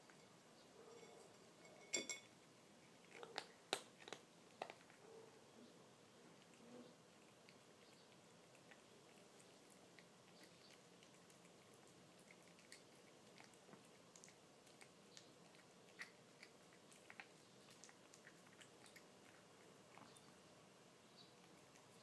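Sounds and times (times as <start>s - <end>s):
cat chewing and licking: 2.4s - 5.4s, 6.0s - 22.0s.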